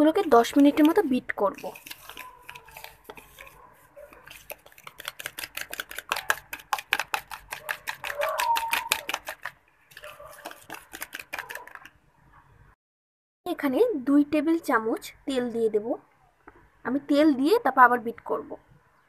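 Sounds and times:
fork beating eggs in a bowl: 0.3s - 12.0s.

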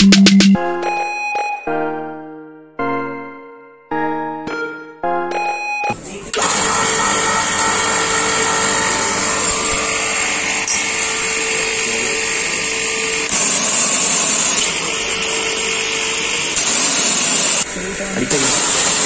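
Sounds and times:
pressure washer motor humming: 6.3s - 19.0s
high-pressure water jet hissing: 11.0s - 19.0s.

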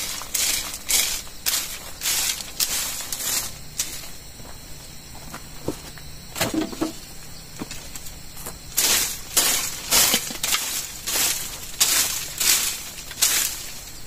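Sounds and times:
dry twigs crackling and snapping: 0.0s - 4.1s, 7.7s - 14.0s
twigs sweeping dry dirt: 0.0s - 14.0s.

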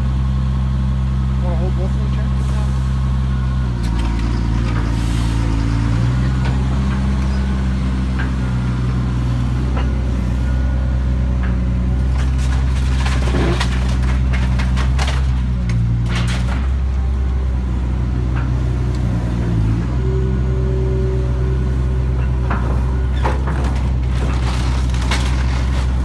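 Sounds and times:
excavator diesel engine running: 0.0s - 26.0s
sharp knocks and cracks: 11.4s - 16.8s.

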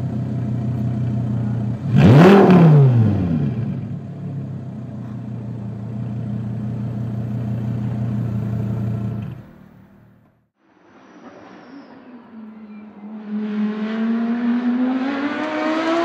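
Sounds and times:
sports car engine idling: 0.0s - 2.3s, 3.0s - 10.4s
faint car engine: 0.0s - 16.0s.

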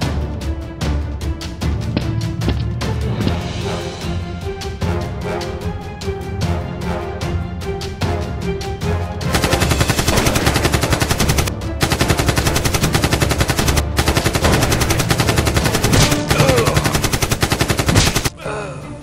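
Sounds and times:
background music: 0.0s - 19.0s
machine gun fire: 9.3s - 18.3s.

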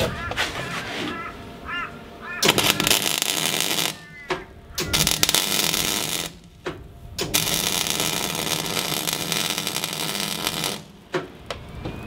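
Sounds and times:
welder arc crackling: 2.4s - 11.7s.

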